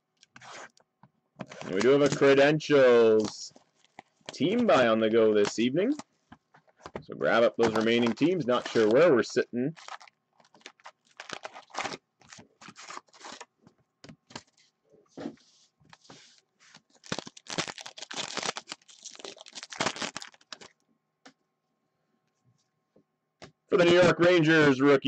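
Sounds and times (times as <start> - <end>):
foil wrappers and cardboard tearing: 1.4 - 5.7, 7.6 - 9.1, 9.8 - 13.5, 16.8 - 20.7.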